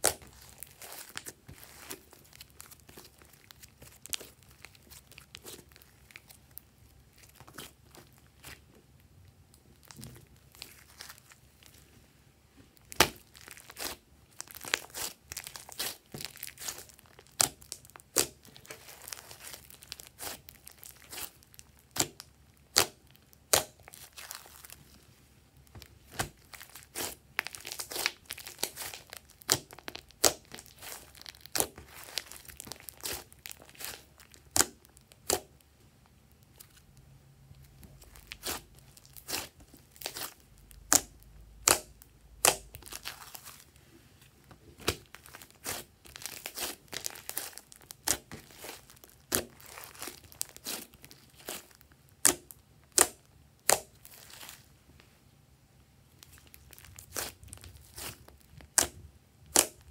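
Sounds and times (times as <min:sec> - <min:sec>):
slime squelching and popping: 0:00.0 - 0:11.8, 0:12.8 - 0:24.8, 0:25.7 - 0:35.6, 0:37.7 - 0:43.6, 0:44.8 - 0:54.6, 0:56.2 - 0:59.9.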